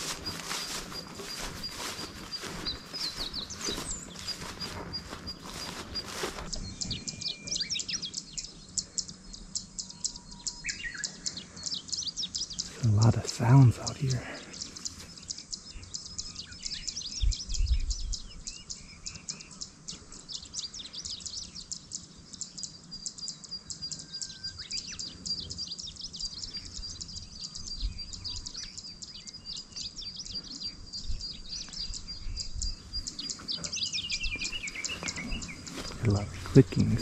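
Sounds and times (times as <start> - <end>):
animals clicking and chirping: 0.0 - 16.2, 33.0 - 37.0.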